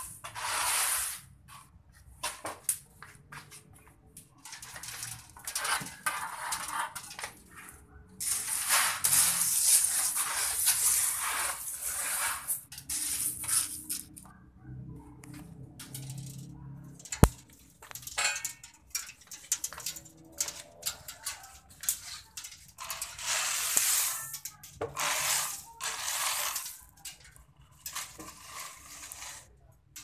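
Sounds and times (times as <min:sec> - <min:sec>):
coffee beans crackling: 0:08.2 - 0:14.2, 0:15.8 - 0:30.0.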